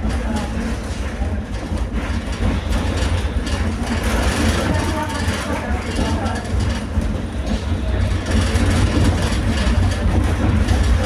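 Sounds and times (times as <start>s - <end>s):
tram running low rumble: 0.0s - 11.0s.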